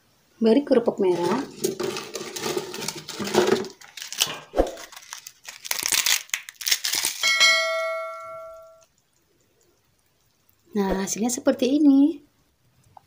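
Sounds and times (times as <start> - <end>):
crackers crunching: 1.1 - 7.4
bell chime: 7.2 - 8.8.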